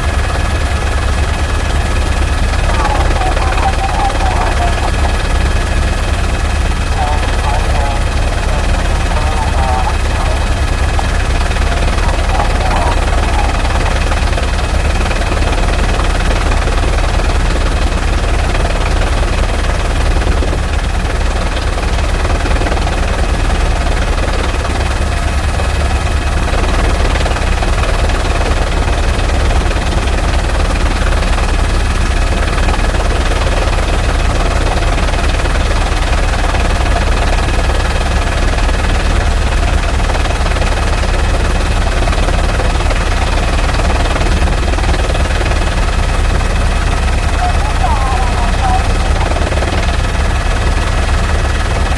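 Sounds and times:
low mechanical drone: 0.0s - 27.4s, 41.1s - 51.9s.

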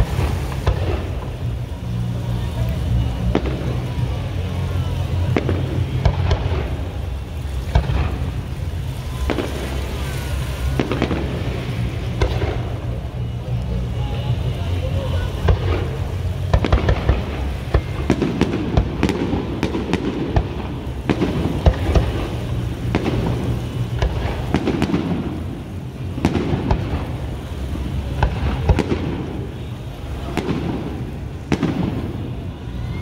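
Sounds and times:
fireworks bursting with bangs: 0.0s - 33.0s.

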